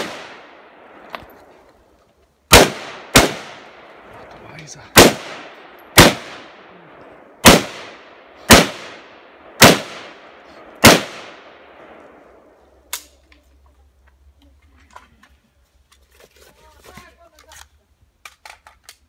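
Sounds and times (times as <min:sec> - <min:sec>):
rifle shots echoing: 0:00.0 - 0:01.1, 0:02.5 - 0:04.2, 0:04.9 - 0:12.4.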